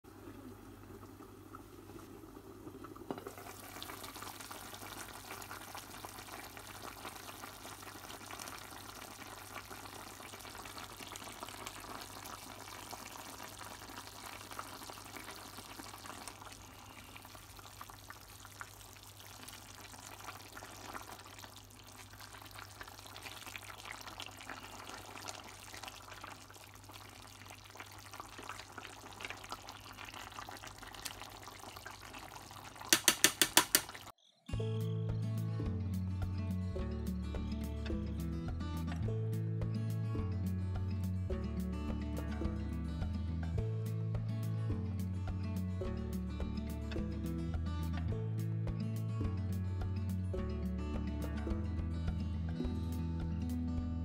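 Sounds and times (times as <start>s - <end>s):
stew bubbling and sizzling: 0.0s - 34.4s.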